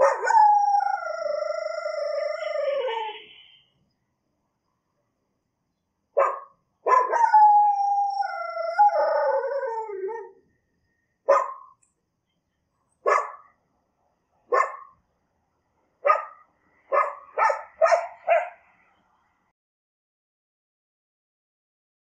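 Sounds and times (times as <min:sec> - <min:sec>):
dog barking: 0:00.0 - 0:00.4, 0:06.2 - 0:07.3, 0:11.3 - 0:11.8, 0:13.0 - 0:13.6, 0:14.5 - 0:15.0, 0:16.0 - 0:18.7
dog howling: 0:00.0 - 0:03.2, 0:06.9 - 0:10.4.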